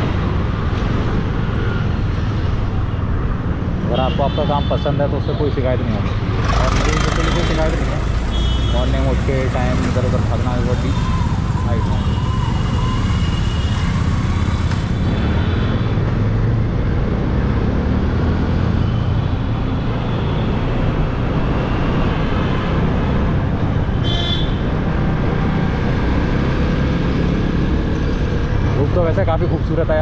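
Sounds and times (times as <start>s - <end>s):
surrounding traffic: 0.0s - 30.0s
motorcycle engine: 6.2s - 8.6s.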